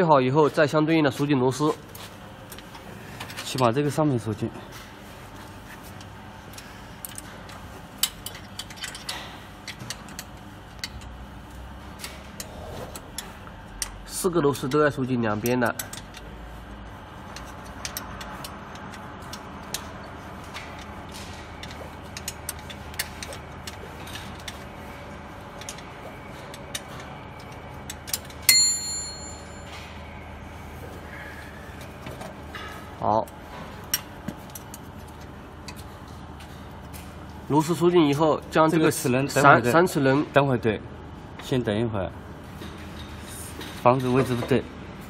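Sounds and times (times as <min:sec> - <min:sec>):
steady low hum: 0:00.0 - 0:45.0
ringing metal clink: 0:28.5 - 0:30.0.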